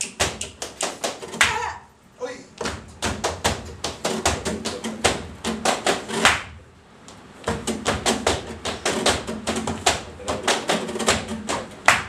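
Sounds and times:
hand claps: 0.0s - 1.7s, 2.6s - 12.0s
flamenco guitar chords: 0.0s - 1.9s, 2.6s - 6.6s, 7.4s - 12.0s
heel strikes on wooden stage: 2.6s - 6.6s, 7.4s - 12.0s.

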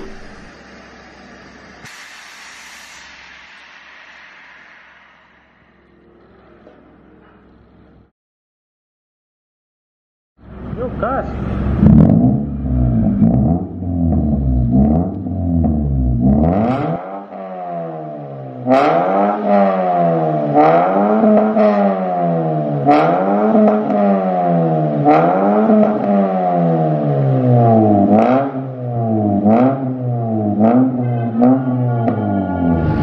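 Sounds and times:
car engine revving: 0.0s - 8.1s, 10.4s - 33.0s.

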